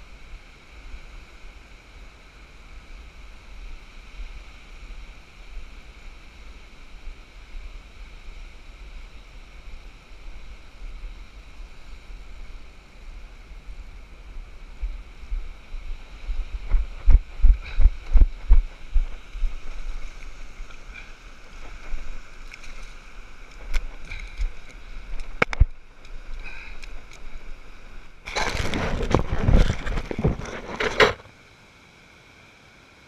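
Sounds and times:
rustling and scraping on sand: 0.0 - 31.3
low thumps: 16.2 - 19.8.

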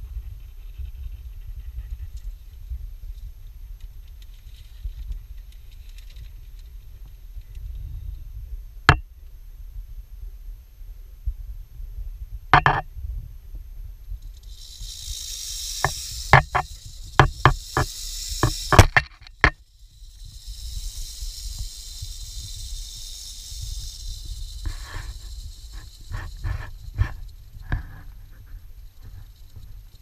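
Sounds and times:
rattlesnake rattling: 0.2 - 8.6, 14.0 - 30.0
sharp knocks: 12.6 - 12.8.

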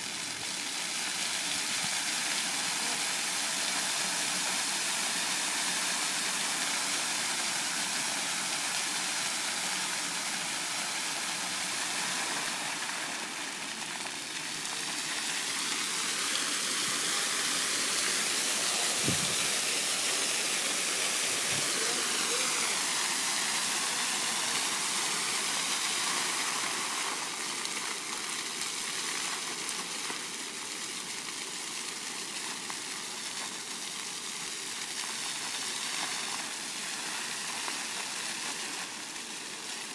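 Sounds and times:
fountain water splashing: 0.0 - 39.9.

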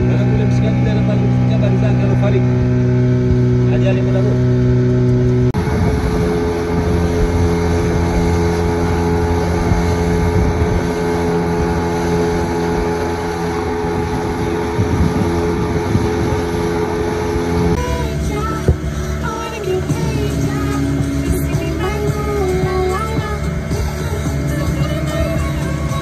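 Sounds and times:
outboard motor droning: 0.0 - 26.0
water splashing along hull: 0.0 - 26.0.

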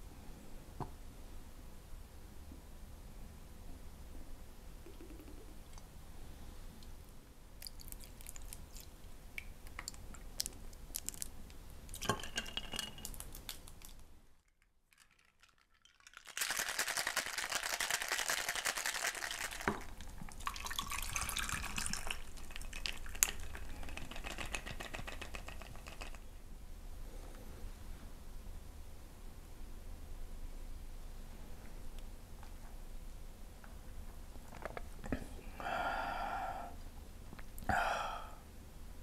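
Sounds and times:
ice rattling in cocktail shaker: 11.9 - 13.9, 14.8 - 26.2
juice pouring into tin: 15.0 - 26.2.

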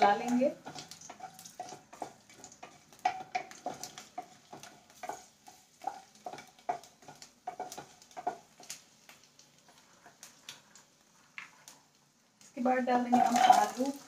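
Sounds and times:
spices sizzling in oil: 0.0 - 14.0
wooden spatula knocking on pan: 1.6 - 8.5.

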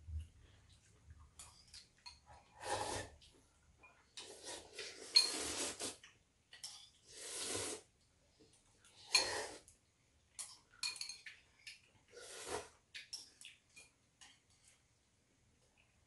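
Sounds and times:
people slurping noodles: 4.2 - 6.1, 7.0 - 7.9.

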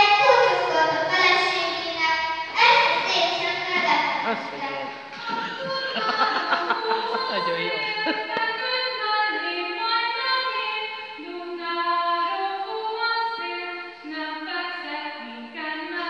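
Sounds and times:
children singing together: 0.0 - 11.6.

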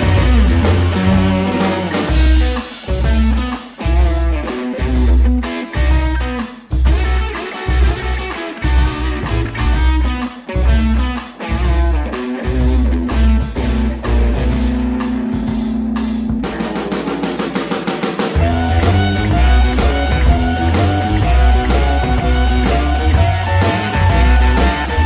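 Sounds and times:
heavy bass beat: 0.0 - 17.2, 18.4 - 25.0
rock music: 0.0 - 25.0.

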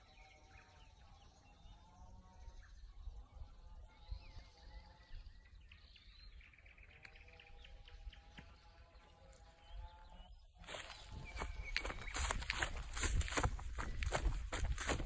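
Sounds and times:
phone rustling through grass: 10.6 - 15.0
wind rumble on microphone: 11.0 - 15.0.

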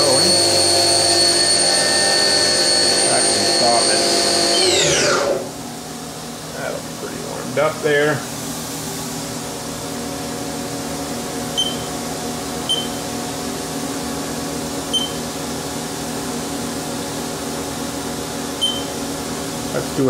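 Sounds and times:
milling machine hum: 0.0 - 20.0
short high keypad beeps: 11.6 - 11.9, 12.7 - 13.0, 14.9 - 15.2, 18.6 - 18.9.

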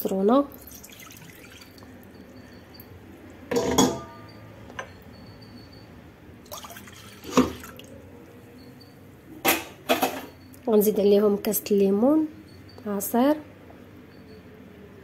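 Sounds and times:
milk pouring into metal pot: 0.6 - 1.9, 6.5 - 7.9
glass clinking and knocking: 3.5 - 5.0, 6.6 - 7.8.

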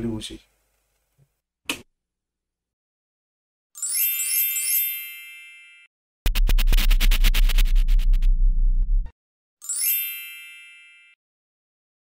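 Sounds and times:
bright chime jingle: 3.8 - 5.9, 9.6 - 11.2
electronic music with beat: 6.3 - 9.1.

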